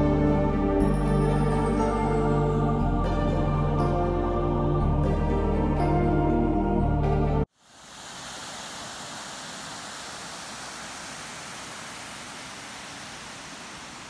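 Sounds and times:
water rushing over weir: 0:07.5 - 0:14.0.

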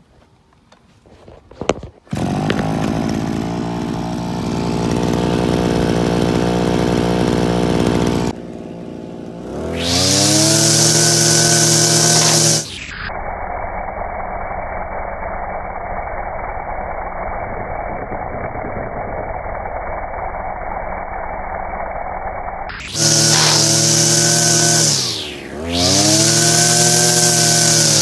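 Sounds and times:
brushcutter engine revving: 0:02.1 - 0:12.9, 0:22.8 - 0:28.0.

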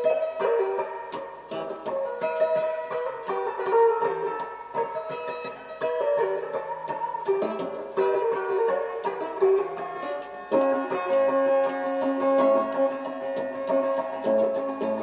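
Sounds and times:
electric guitar picking: 0:00.0 - 0:15.0.

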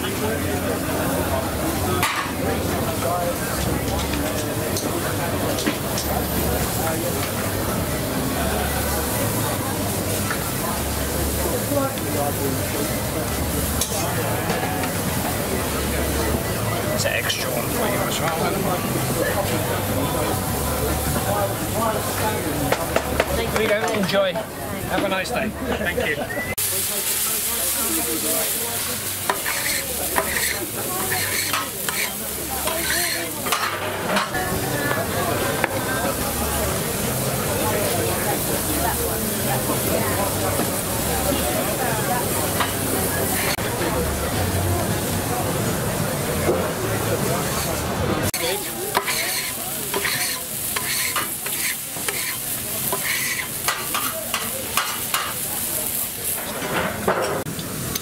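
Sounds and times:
burger sizzling on griddle: 0:00.0 - 0:58.0
metal spatula scraping steel plate: 0:29.4 - 0:34.3, 0:48.9 - 0:54.0.

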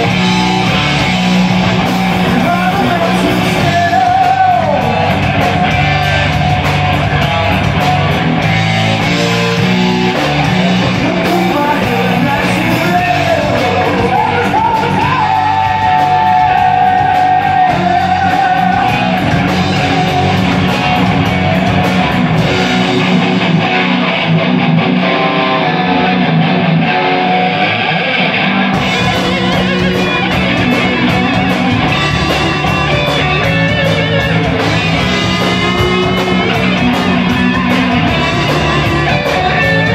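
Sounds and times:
drums and cymbals: 0:00.0 - 0:24.3, 0:28.7 - 0:39.9
bass guitar: 0:00.0 - 0:39.9
electric guitars: 0:00.0 - 0:39.9.

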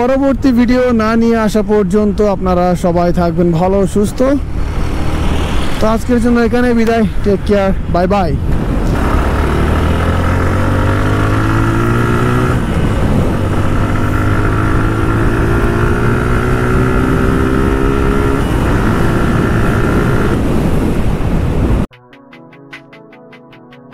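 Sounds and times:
wind rushing on microphone: 0:02.6 - 0:21.9
motorcycle engine accelerating: 0:04.4 - 0:05.9, 0:08.6 - 0:21.9.

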